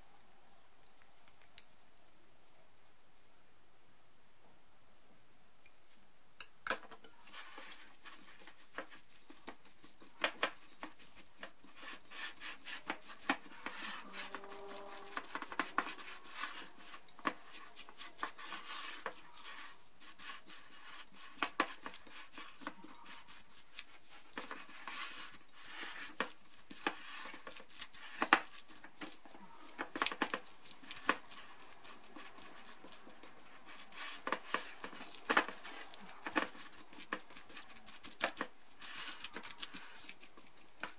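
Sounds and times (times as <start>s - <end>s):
soft mixing noise: 0.0s - 40.9s
spatula knocking and scraping bowl: 6.7s - 40.9s.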